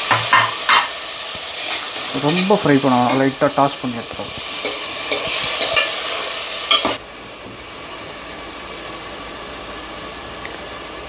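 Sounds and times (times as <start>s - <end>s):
cheese sizzling in oil: 0.0s - 11.0s
spatula clink: 1.6s - 3.5s, 4.6s - 6.0s, 6.7s - 7.0s.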